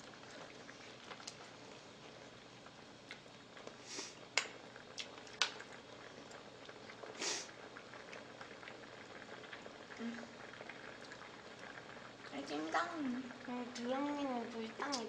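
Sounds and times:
broth simmering in a metal pot: 0:00.0 - 0:15.0.

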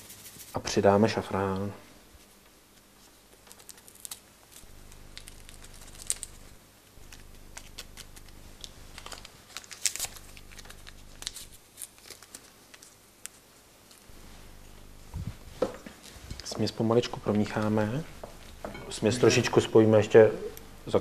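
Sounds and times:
low steady hum: 0:00.0 - 0:21.0
packet crinkling: 0:03.3 - 0:16.5.

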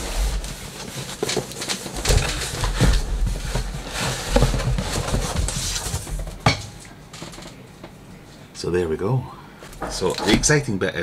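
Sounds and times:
cardboard and plastic rustling: 0:00.0 - 0:06.5.

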